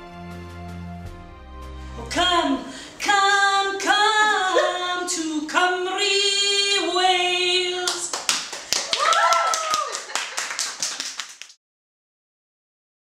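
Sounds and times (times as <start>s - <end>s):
woman singing unaccompanied: 2.0s - 8.1s
hand claps: 7.8s - 11.6s.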